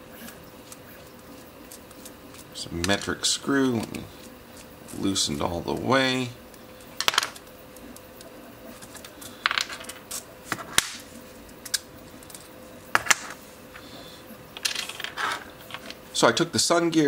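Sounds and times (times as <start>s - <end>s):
pieces set down on workbench: 9.4s - 10.8s, 13.0s - 13.4s.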